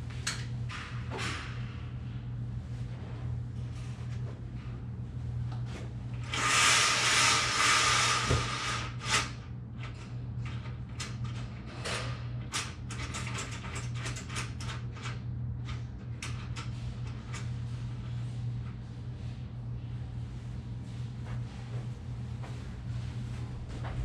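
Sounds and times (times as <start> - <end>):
blind headrail scraping: 6.2 - 9.3.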